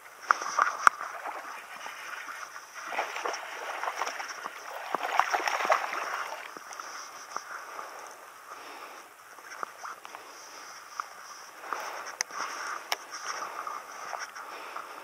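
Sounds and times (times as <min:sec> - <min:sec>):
fish splashing in water: 0:00.2 - 0:08.0.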